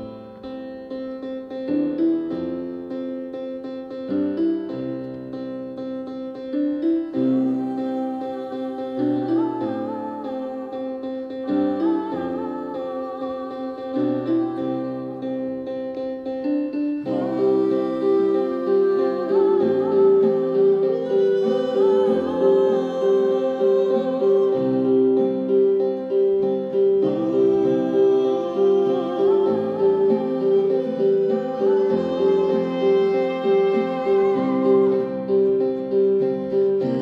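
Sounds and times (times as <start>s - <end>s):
acoustic guitar: 0.0s - 37.0s
keyboard: 0.0s - 37.0s
woman humming: 7.1s - 15.6s, 17.0s - 26.2s, 26.8s - 35.6s.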